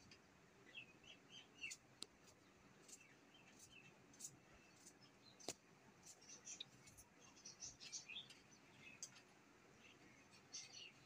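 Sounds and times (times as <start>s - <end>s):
faint bird chirps: 2.8s - 11.0s.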